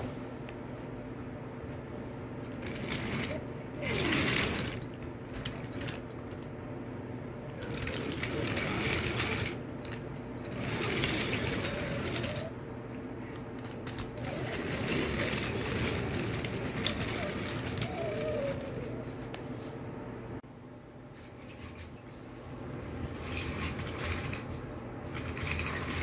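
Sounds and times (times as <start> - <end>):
toy train rolling on wooden track: 2.5 - 6.5, 7.5 - 12.6, 13.3 - 19.0, 22.8 - 26.0
wheels clicking over track joints: 2.5 - 6.5, 7.5 - 12.5, 13.3 - 18.9, 22.8 - 26.0.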